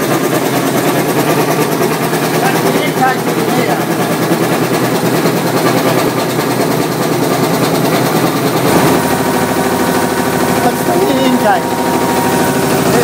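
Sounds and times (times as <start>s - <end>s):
air compressor clattering: 0.0s - 13.0s
deeper engine note: 0.0s - 13.0s.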